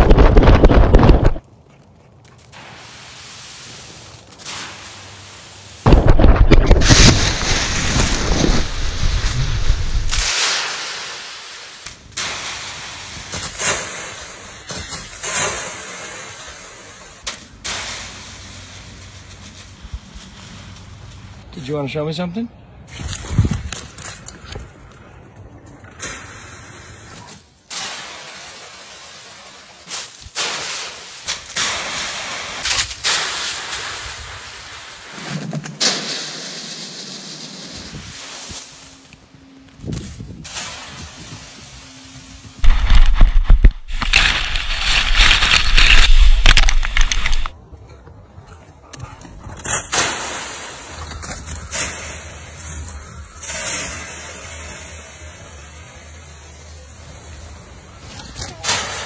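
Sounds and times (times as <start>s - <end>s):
dry leaves rustling and crunching: 1.3s - 10.4s, 18.1s - 21.4s, 41.1s - 47.6s.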